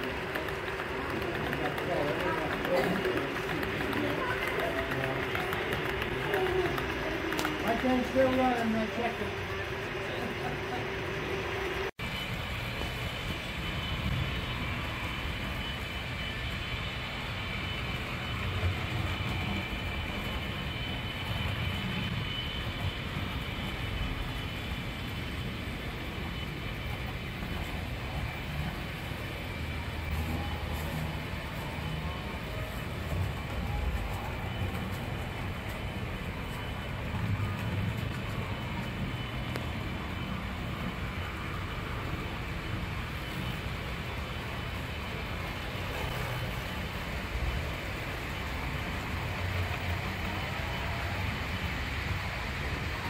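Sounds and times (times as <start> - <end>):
model train rolling hum: 0.0 - 53.0.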